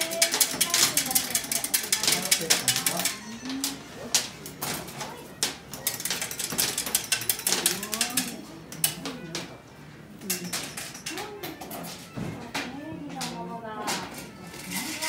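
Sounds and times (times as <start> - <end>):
hard candy clicking and snapping: 0.0 - 9.6.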